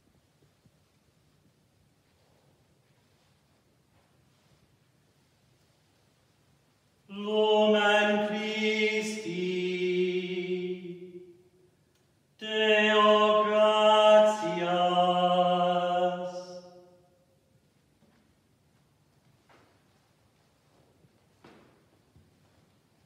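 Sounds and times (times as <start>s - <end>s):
priest chanting: 7.1s - 11.5s, 12.4s - 17.0s.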